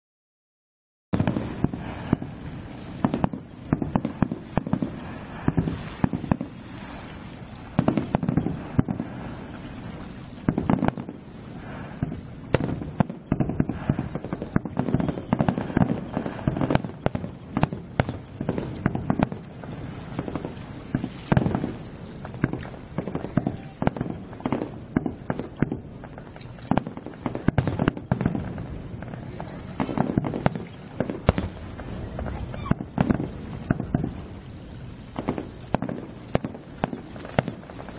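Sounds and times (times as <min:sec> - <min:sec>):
firework shells bursting: 0:01.2 - 0:37.9.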